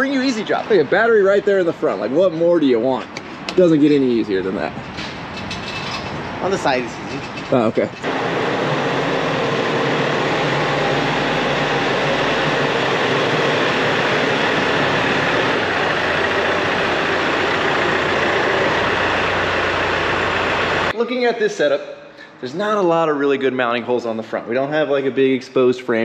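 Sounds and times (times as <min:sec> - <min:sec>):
tractor diesel engine running: 0:08.0 - 0:20.9.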